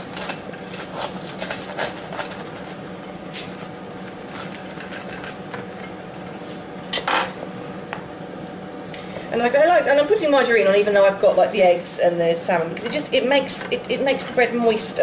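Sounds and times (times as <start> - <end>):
knife scraping crusty bread: 0.0 - 6.6.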